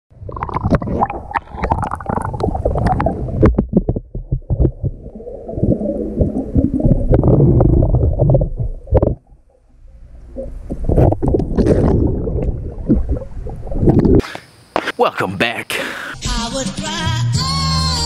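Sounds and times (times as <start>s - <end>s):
muffled underwater rumbling and gurgling: 0.1s - 14.2s
bubbles crackling clicks: 0.1s - 14.9s.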